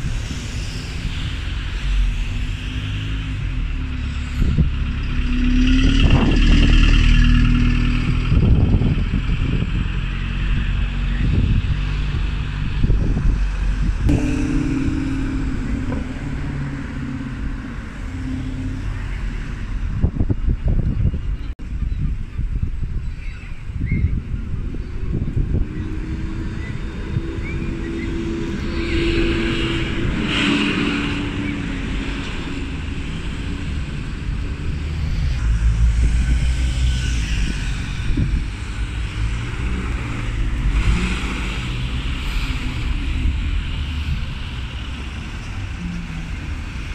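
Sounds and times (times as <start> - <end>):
vehicles passing in traffic: 0.0 - 46.9
wind rumble on microphone: 0.0 - 46.9.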